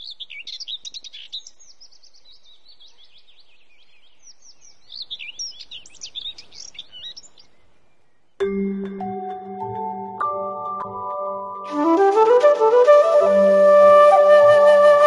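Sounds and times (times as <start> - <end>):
birds chirping: 0.0 - 9.0
steady background hiss: 0.0 - 9.4.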